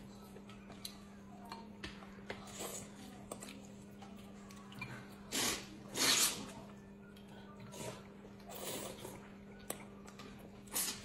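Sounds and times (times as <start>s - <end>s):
noodles being slurped: 5.3s - 6.6s.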